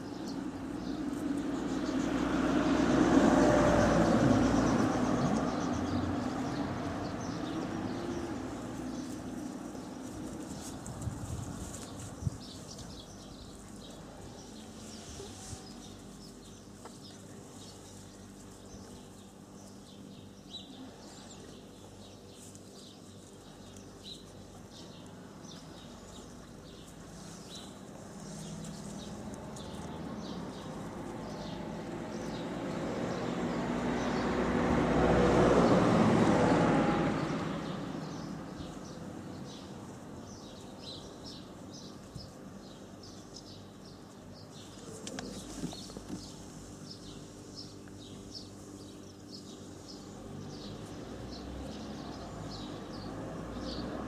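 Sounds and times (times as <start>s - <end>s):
birds chirping: 0.0s - 54.0s
vehicle passing: 0.1s - 11.4s, 27.9s - 39.6s, 49.4s - 54.0s.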